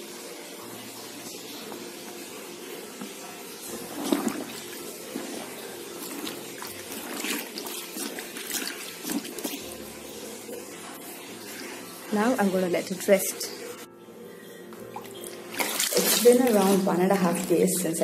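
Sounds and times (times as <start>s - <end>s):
water sloshing and trickling: 1.5s - 18.0s
wet sheet squeezed in bucket: 3.8s - 9.6s, 15.1s - 17.9s.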